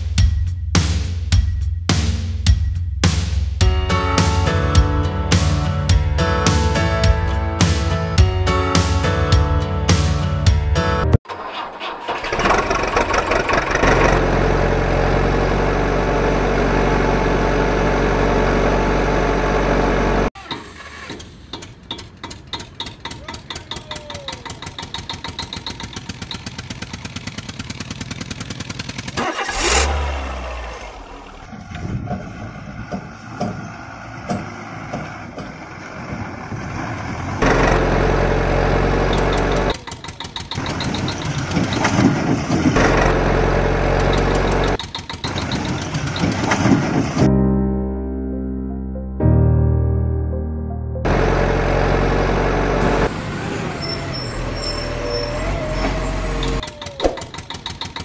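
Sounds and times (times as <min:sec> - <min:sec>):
diesel engine running: 0:11.2 - 0:47.4, 0:51.0 - 0:58.0
tractor engine chugging: 0:11.3 - 0:15.1, 0:20.0 - 0:29.8, 0:37.4 - 0:47.0, 0:51.1 - 0:58.0.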